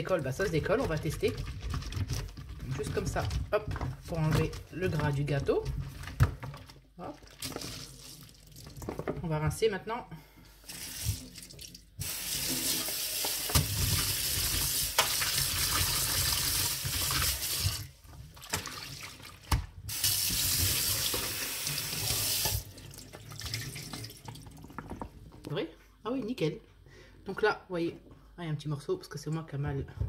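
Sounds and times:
tap water running: 10.6s - 25.4s.

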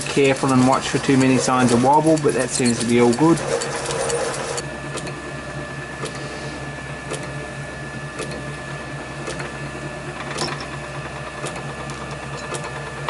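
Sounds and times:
lathe humming: 0.0s - 13.0s.

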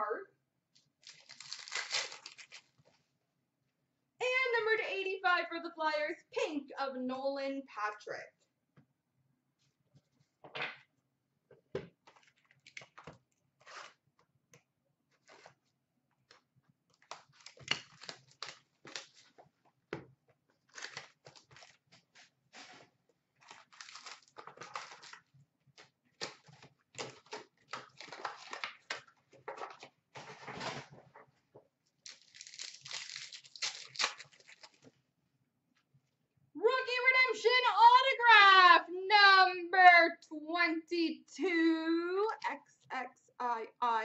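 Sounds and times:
foil wrapper tearing and crinkling: 1.0s - 2.8s, 17.1s - 19.4s, 20.7s - 22.8s, 23.4s - 25.3s, 32.0s - 34.8s.

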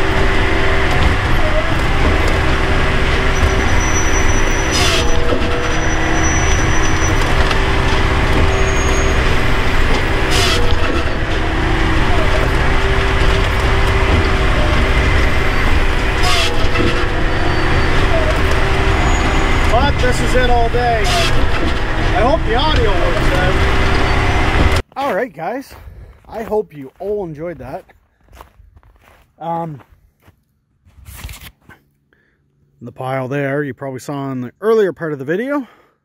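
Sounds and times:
engine and hydraulics running: 0.0s - 24.9s.

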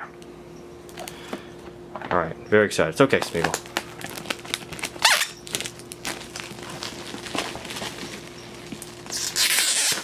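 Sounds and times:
plastic wrap crackling and crinkling: 3.1s - 10.0s.

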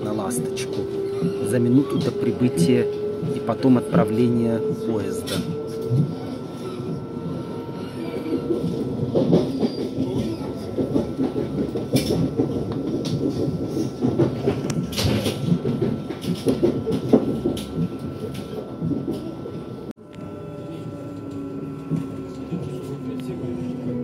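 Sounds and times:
train rumble inside passenger car: 0.0s - 24.0s
train wheels clattering: 8.2s - 19.5s.

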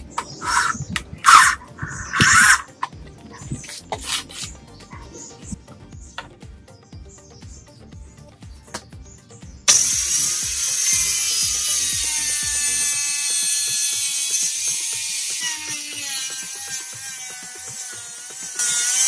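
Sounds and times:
angle grinder cutting wood: 0.0s - 3.0s, 9.7s - 19.0s.

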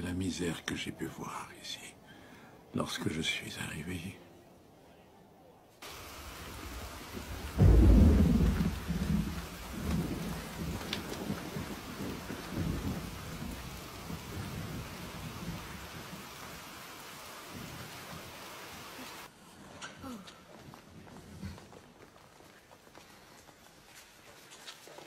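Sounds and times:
thunderclap rumbling: 5.8s - 18.8s
steady rain falling: 5.8s - 19.3s.

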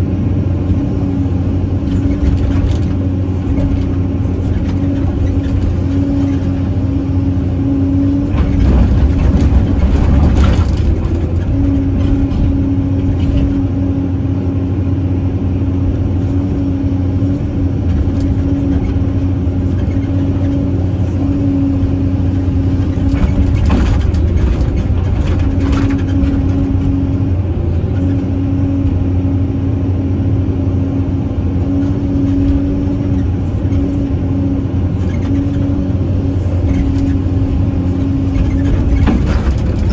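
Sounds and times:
excavator diesel engine under load: 0.0s - 39.9s.

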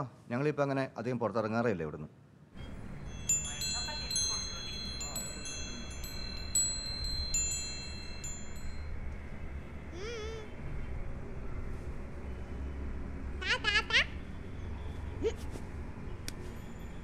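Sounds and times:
wind chime bells jingling: 2.6s - 9.2s, 16.5s - 17.0s.

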